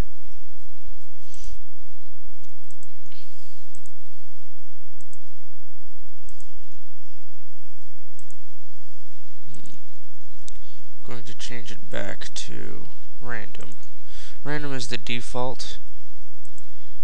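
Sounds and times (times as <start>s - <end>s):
electrical hum and hiss: 0.0s - 17.0s
computer mouse clicking: 2.4s - 4.0s, 5.0s - 5.2s, 6.3s - 6.6s, 8.2s - 8.4s, 9.5s - 9.8s.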